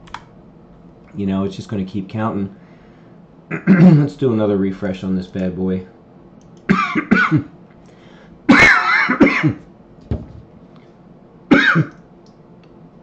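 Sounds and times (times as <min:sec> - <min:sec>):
man coughing: 0:03.5 - 0:04.1, 0:06.7 - 0:07.6, 0:08.5 - 0:09.6, 0:11.5 - 0:12.0.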